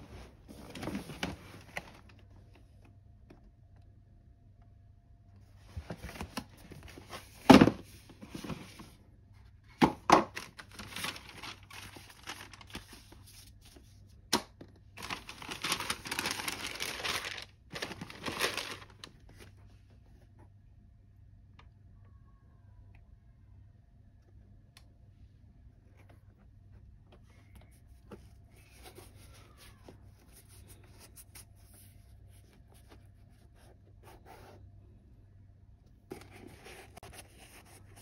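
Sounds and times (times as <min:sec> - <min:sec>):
tissue paper crinkling: 0:10.4 - 0:14.1, 0:15.0 - 0:19.5.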